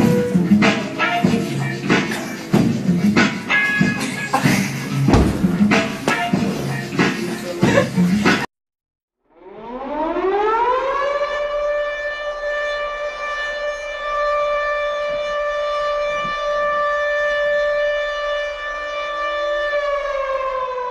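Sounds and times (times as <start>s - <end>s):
siren-like rising tone: 0.0s - 1.9s, 9.2s - 20.9s.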